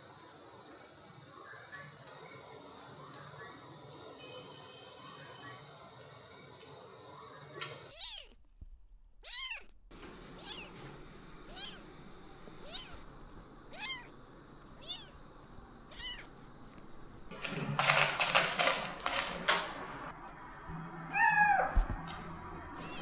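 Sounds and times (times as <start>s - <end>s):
kitten mewing: 7.9s - 8.4s, 9.2s - 9.7s, 11.5s - 11.8s, 12.6s - 13.0s, 13.7s - 14.1s, 14.8s - 15.2s, 15.9s - 16.3s
rustling in cat litter: 16.0s - 20.4s.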